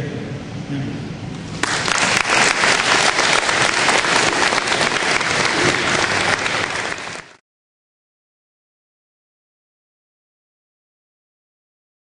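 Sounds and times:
audience applauding: 1.6s - 7.4s.

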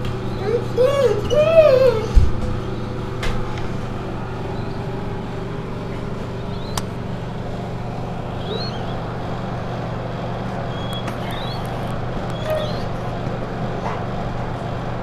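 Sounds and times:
low mechanical hum: 0.0s - 15.0s
nestling birds peeping: 4.3s - 7.3s, 8.0s - 9.4s, 10.0s - 13.0s
sharp click: 6.7s - 6.9s.

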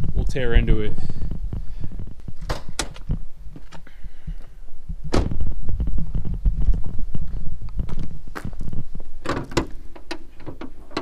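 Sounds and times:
low rumble: 0.0s - 9.2s
sharp thump: 5.1s - 5.4s
footsteps on concrete: 5.7s - 9.1s.

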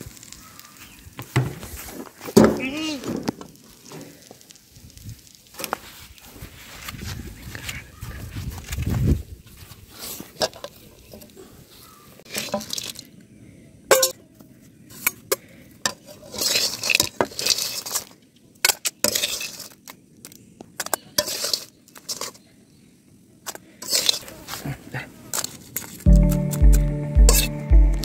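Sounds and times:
metal spatula scraping a wok: 15.9s - 18.1s, 19.0s - 19.8s, 21.2s - 22.4s, 23.8s - 24.3s, 27.3s - 27.5s.

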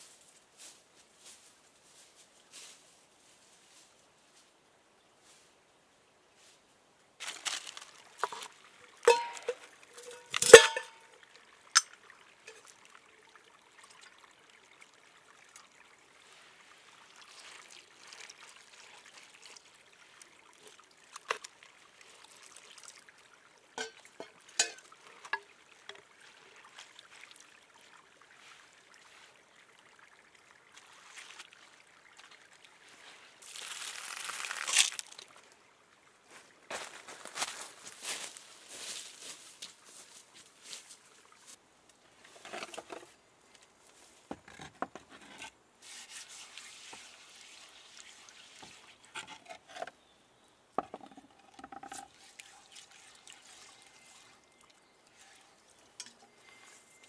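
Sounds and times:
shallow stream trickling: 0.0s - 57.0s
water splashing onto rocks: 7.2s - 11.1s, 33.4s - 35.4s
metal kettle clinking on rocks: 8.2s - 11.1s, 23.8s - 25.5s.

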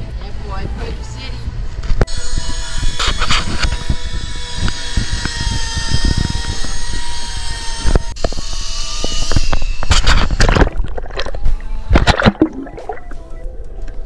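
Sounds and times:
wind on microphone: 0.0s - 13.5s
motor whine: 2.0s - 10.5s
water splashes: 10.4s - 13.3s.

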